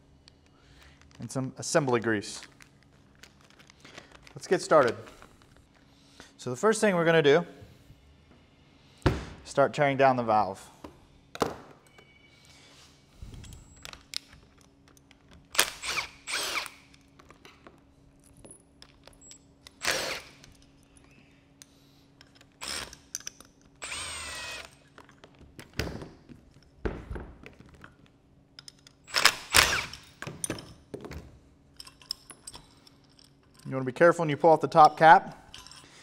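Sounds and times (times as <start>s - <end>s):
cordless drill short bursts: 15.6s - 16.9s, 19.8s - 20.4s, 23.8s - 24.8s, 29.1s - 30.0s.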